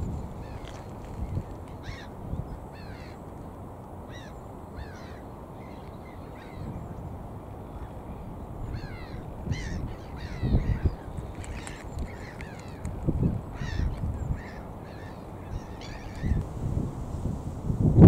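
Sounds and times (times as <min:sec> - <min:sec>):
wind rumbling on microphone: 0:00.0 - 0:18.0
gulls calling harshly: 0:08.6 - 0:16.4.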